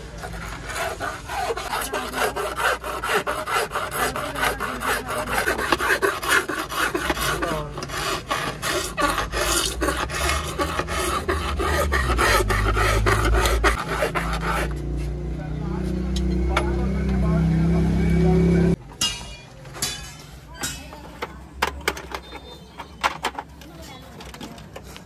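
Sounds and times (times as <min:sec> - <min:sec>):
metal blade scraping plastic: 0:00.0 - 0:14.8.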